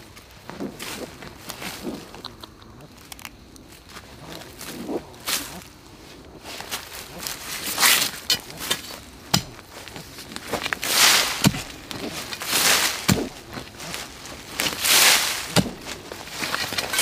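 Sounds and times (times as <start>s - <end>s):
dirt and leaves scraping: 0.0s - 17.0s
digging tool thudding into soil: 7.8s - 9.8s, 10.6s - 17.0s.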